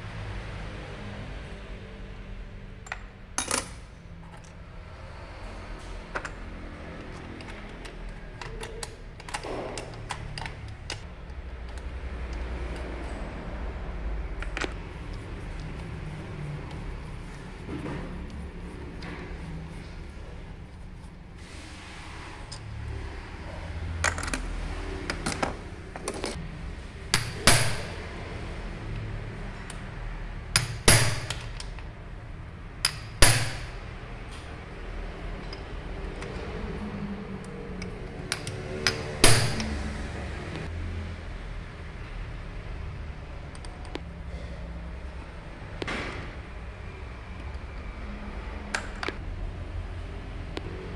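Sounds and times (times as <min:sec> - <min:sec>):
steady low hum: 0:11.0 - 0:22.1
metal scrape: 0:14.7 - 0:23.1
hammer striking metal: 0:27.1 - 0:28.0, 0:32.8 - 0:33.8, 0:38.9 - 0:39.8.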